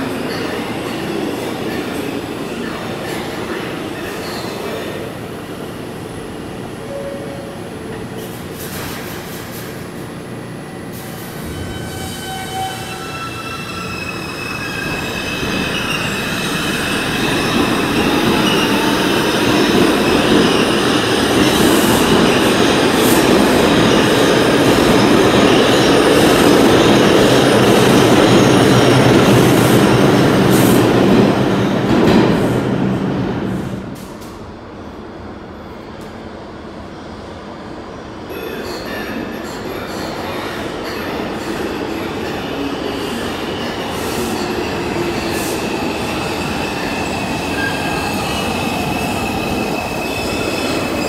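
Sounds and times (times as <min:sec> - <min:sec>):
train wheels rumbling on rail: 0:07.9 - 0:34.8.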